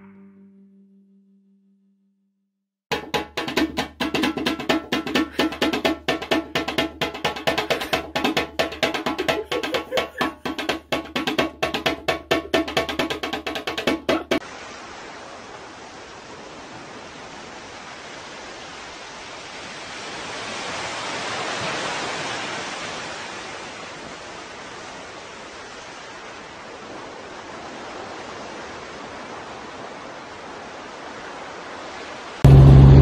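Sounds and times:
small waves washing on sand: 14.4 - 32.5.

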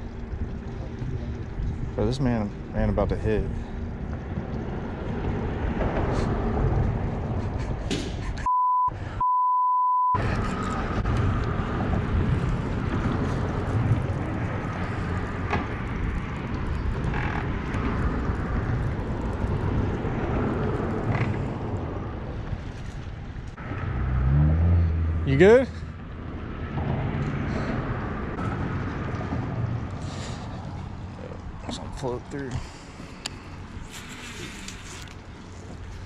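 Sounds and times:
rumbling background noise: 0.0 - 9.2, 10.2 - 36.0
censor bleeps: 8.5 - 10.2.

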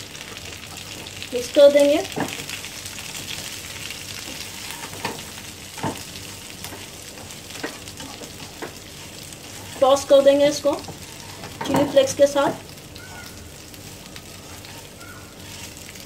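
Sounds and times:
oil sizzling in a wok: 0.0 - 16.0
spatula knocking and scraping pan: 2.1 - 2.6, 4.2 - 12.6.

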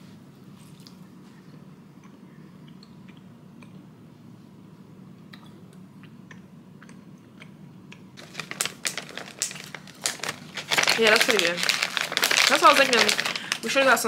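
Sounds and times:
snack wrapper crinkling: 8.2 - 14.0.

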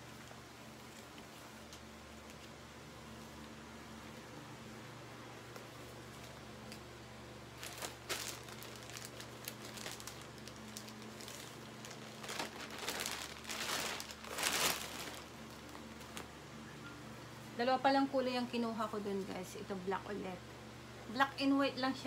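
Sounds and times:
plastic bag crinkling: 7.6 - 16.3.

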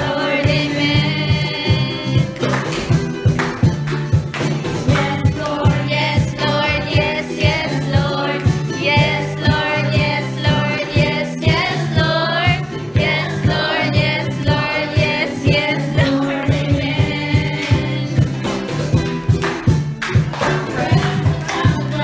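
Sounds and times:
woman singing into microphone: 0.0 - 2.4, 4.9 - 18.4, 20.4 - 22.0
steady beat: 0.0 - 22.0
strummed ukulele and guitar: 0.0 - 22.0.

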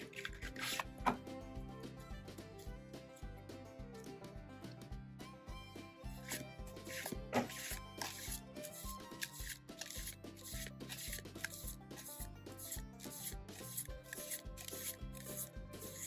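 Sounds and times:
cards rubbing and sliding: 0.0 - 1.0, 6.2 - 16.0
background music with beat: 0.0 - 16.0.

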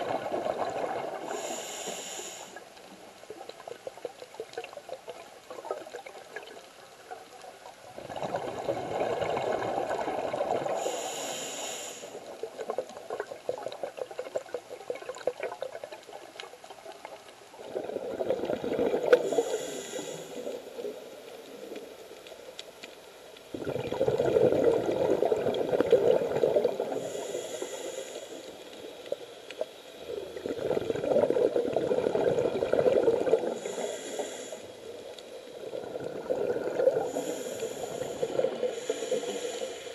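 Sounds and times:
exhaled bubbles rushing underwater: 0.0 - 1.5, 7.8 - 10.9, 17.6 - 19.6, 23.5 - 27.3, 30.0 - 33.8, 35.5 - 39.1
water noise: 0.0 - 39.9
regulator hiss: 1.2 - 2.7, 10.7 - 12.3, 19.1 - 22.2, 26.3 - 30.2, 33.4 - 35.8, 37.0 - 39.9.

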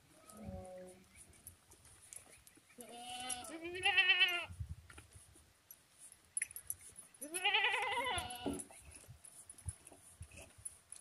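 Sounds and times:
goat bleating: 2.8 - 4.5, 7.2 - 8.6.

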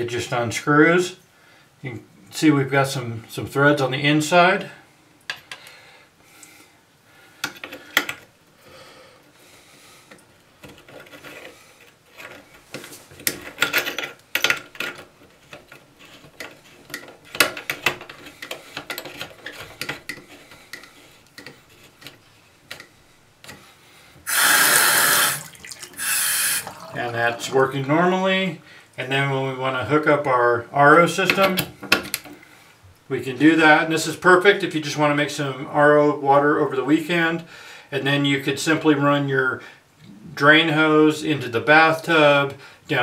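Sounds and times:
metallic clicks and scraping: 10.1 - 23.6
water rushing from tap: 24.3 - 27.8.

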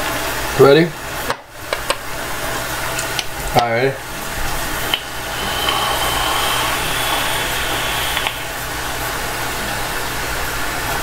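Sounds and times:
exhaling hiss: 4.6 - 9.8
faint high whine: 4.7 - 9.8
vape airy hiss: 4.7 - 9.8
vape click: 4.9 - 8.9.

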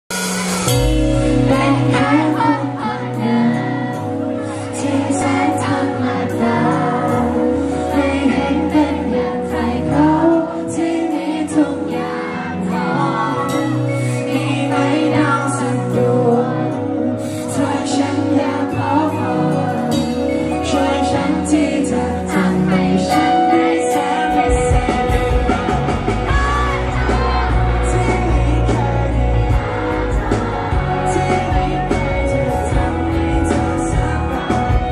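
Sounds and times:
bass line: 0.1 - 4.2, 19.9 - 34.9
electric guitar: 0.1 - 34.9
man singing into microphone: 26.3 - 34.9.

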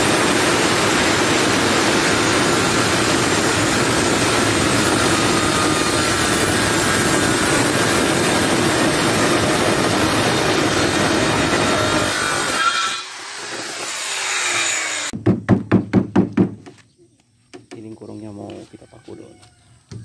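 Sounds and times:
circular saw cutting wood: 0.0 - 15.2.

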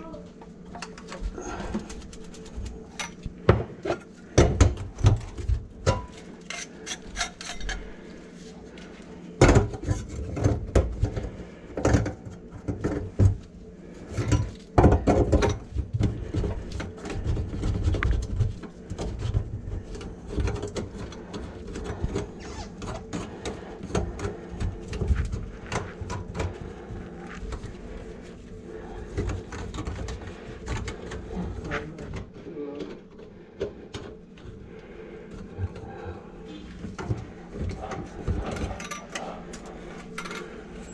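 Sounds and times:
steady low hum: 0.0 - 40.9
metal parts and tools clanking: 5.9 - 7.9, 38.4 - 40.9.

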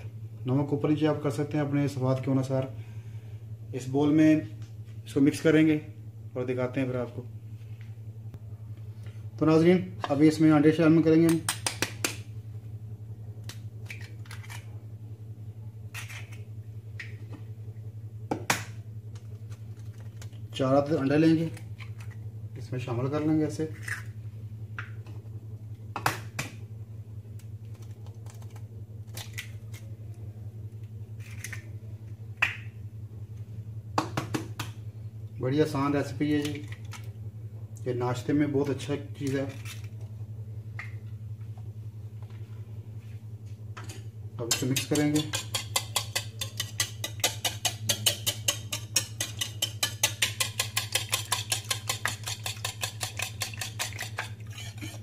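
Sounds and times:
steady low hum: 0.0 - 55.0
eggshells cracking on a bowl: 21.4 - 22.2, 27.4 - 29.9, 30.8 - 31.7, 39.2 - 40.1
whisk clicking against bowl: 44.4 - 55.0.

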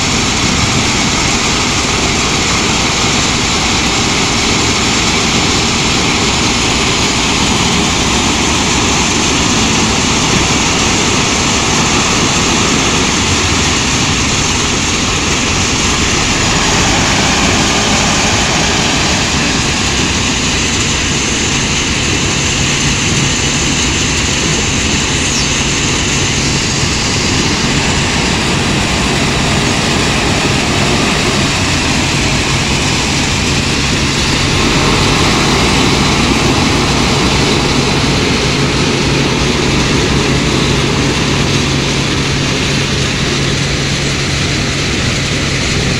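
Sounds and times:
diesel engine running: 0.0 - 45.9
loud mechanical machinery noise: 0.0 - 45.9
low engine hum: 0.0 - 45.9.

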